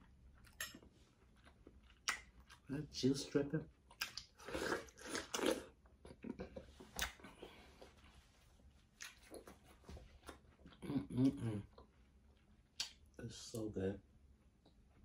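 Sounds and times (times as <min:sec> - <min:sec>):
person chewing watermelon: 0:00.0 - 0:02.8, 0:03.8 - 0:08.1, 0:08.8 - 0:13.0.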